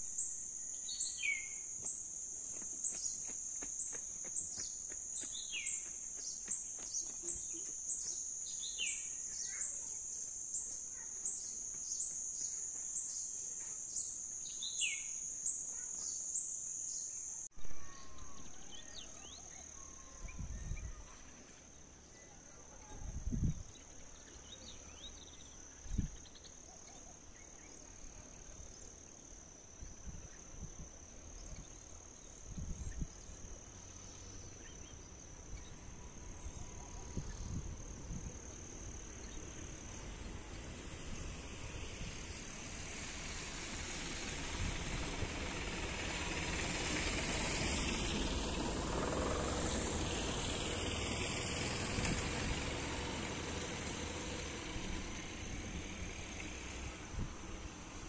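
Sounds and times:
high-pitched insect trill: 0.0s - 18.9s
outdoor ambience: 0.0s - 58.0s
passing vehicle: 38.8s - 58.0s.

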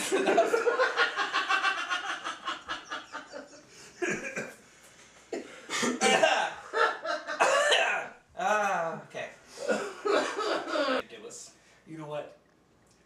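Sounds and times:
men laughing: 0.0s - 4.6s, 6.2s - 7.6s, 9.6s - 11.0s.

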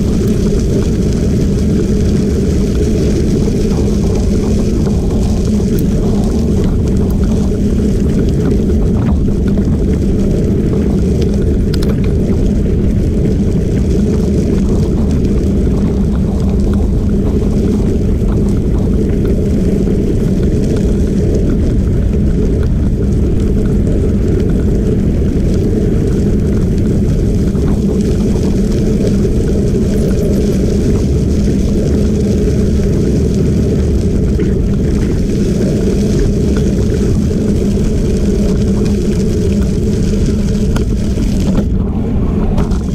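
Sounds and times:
tyres rolling on gravel: 0.0s - 42.9s
wind buffeting microphone: 0.0s - 42.9s.

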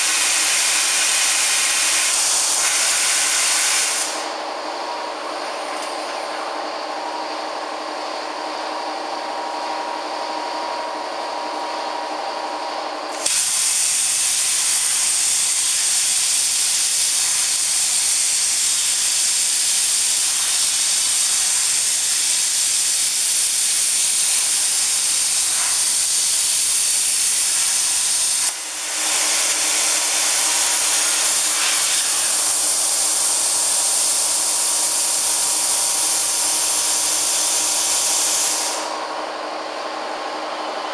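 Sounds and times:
cutting torch hissing: 0.0s - 4.5s, 13.0s - 39.1s
steady multi-tone hum: 0.0s - 40.9s.

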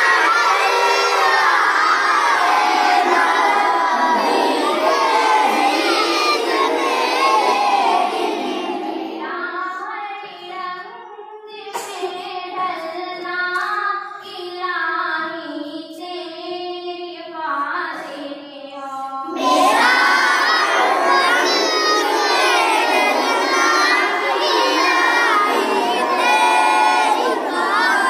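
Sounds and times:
children singing unaccompanied: 0.0s - 10.5s, 19.2s - 28.0s
child singing alone: 0.0s - 28.0s.

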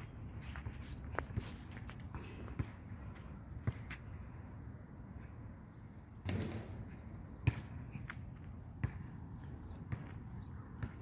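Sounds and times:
footsteps walking: 0.0s - 2.1s.

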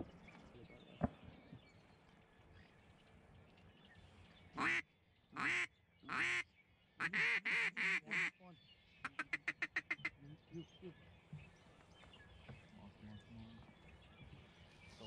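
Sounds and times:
duck call quacks: 7.0s - 8.3s.

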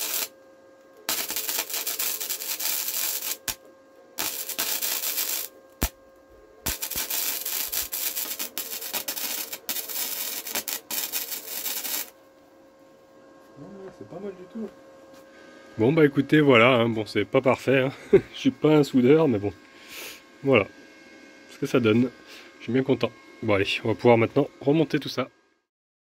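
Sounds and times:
welding arc crackling: 0.0s - 0.3s, 1.0s - 3.6s, 4.2s - 6.0s, 6.6s - 12.2s.

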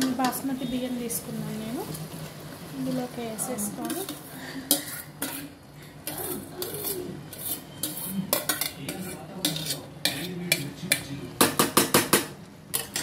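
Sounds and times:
metal spoon scraping pot: 3.8s - 11.1s, 12.7s - 13.0s
sharp taps on pot: 10.5s - 13.0s.

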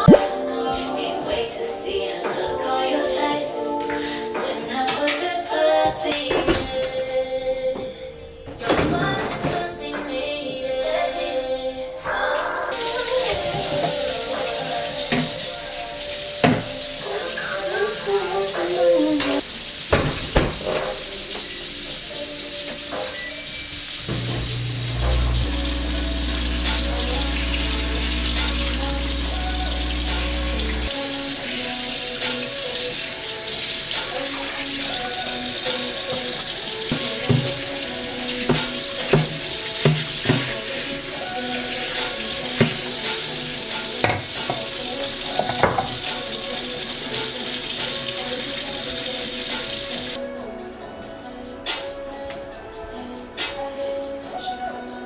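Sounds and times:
tap running into sink: 16.4s - 16.9s, 18.4s - 21.5s, 24.0s - 31.3s, 33.5s - 50.0s
dishes knocking and clinking: 45.4s - 46.0s.

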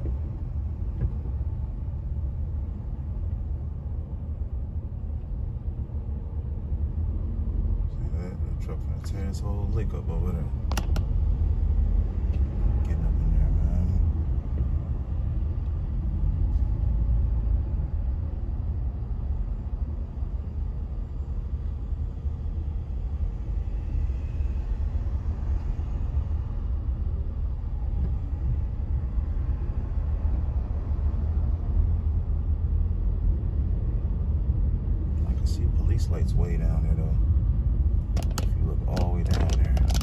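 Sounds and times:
road noise: 0.0s - 40.0s
vehicle engine rumble: 0.0s - 40.0s.

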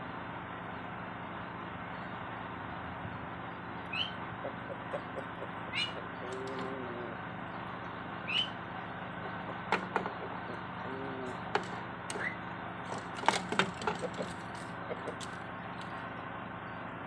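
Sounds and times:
small birds chirping: 3.5s - 13.2s, 13.8s - 17.0s
rooster clucking: 3.9s - 16.2s.

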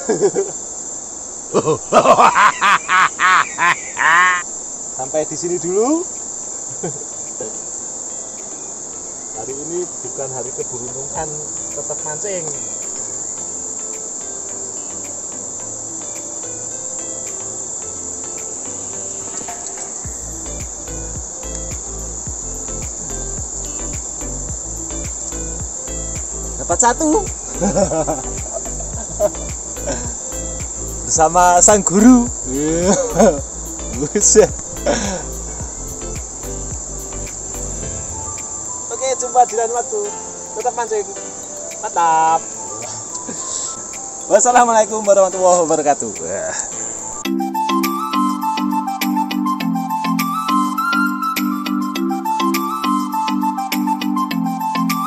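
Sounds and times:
man laughing: 0.0s - 0.6s, 1.5s - 4.5s, 6.7s - 7.1s, 27.5s - 30.5s, 32.0s - 35.6s, 42.9s - 43.8s
insects droning: 0.0s - 55.0s
river rushing: 2.8s - 49.1s.

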